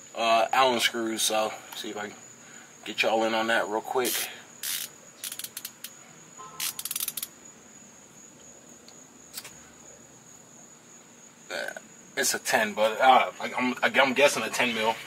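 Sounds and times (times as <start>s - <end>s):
ratchet clicking: 4.1s - 6.0s, 6.6s - 7.3s.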